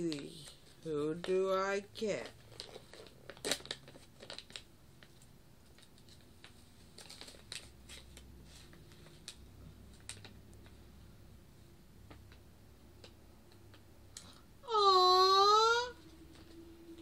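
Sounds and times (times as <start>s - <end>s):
wrapper crinkling and tearing: 2.2s - 8.2s.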